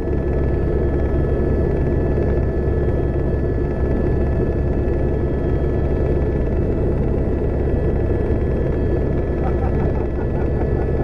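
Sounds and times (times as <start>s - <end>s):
helicopter rumble: 0.0s - 11.0s.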